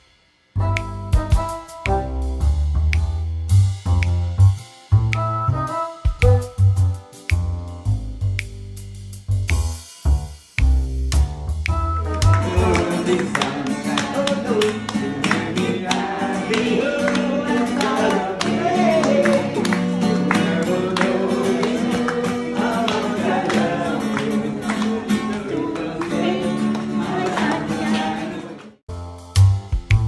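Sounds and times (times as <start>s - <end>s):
person singing: 12.0s - 28.6s
strummed guitar: 12.1s - 28.6s.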